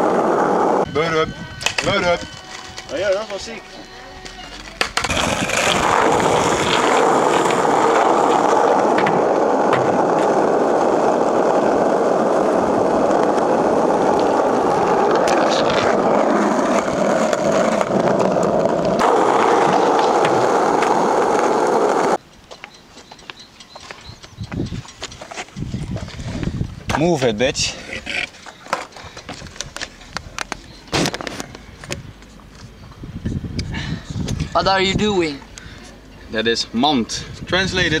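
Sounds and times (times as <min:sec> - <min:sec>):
skateboard wheels rolling on asphalt: 0:00.0 - 0:00.9, 0:04.5 - 0:33.5
skateboard clacks: 0:04.7 - 0:22.2.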